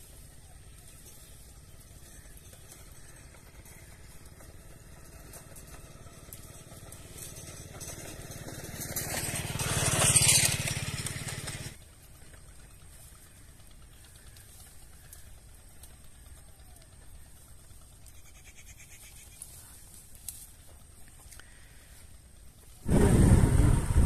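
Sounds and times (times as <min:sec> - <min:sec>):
low steady rumble: 0:00.0 - 0:24.0
bush branches rustling: 0:18.8 - 0:23.3.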